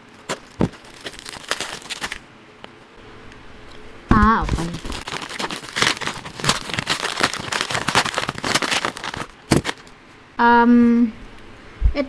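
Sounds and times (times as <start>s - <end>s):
bubble-wrap pouch crinkling: 0.2s - 2.2s, 4.2s - 10.0s.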